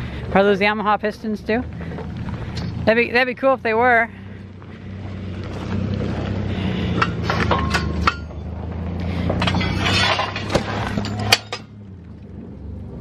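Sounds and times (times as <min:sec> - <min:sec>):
steady low hum: 0:00.0 - 0:13.0
metal engine parts clattering: 0:06.5 - 0:11.8.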